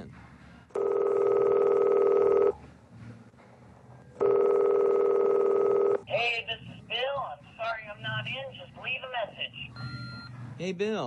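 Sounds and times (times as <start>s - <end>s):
electronic telephone ringing: 0.8s - 2.6s, 4.2s - 6.1s.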